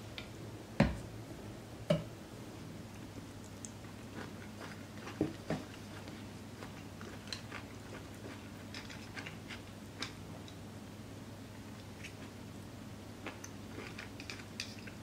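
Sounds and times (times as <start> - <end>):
person chewing: 3.4 - 10.2, 13.2 - 15.0.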